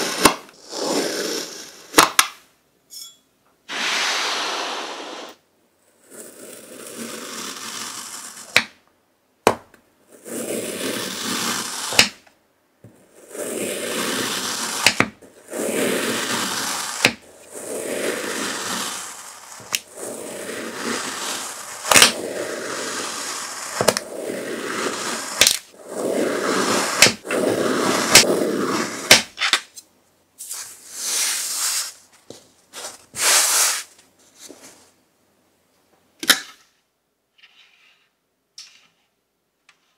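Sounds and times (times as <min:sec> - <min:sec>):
sand crumbling: 0:03.7 - 0:05.4, 0:06.0 - 0:08.6, 0:10.1 - 0:12.2, 0:12.9 - 0:29.6, 0:30.4 - 0:34.9
knife scraping through sand: 0:06.1 - 0:08.6, 0:10.2 - 0:12.0, 0:13.2 - 0:29.2, 0:30.4 - 0:32.0, 0:32.8 - 0:33.9.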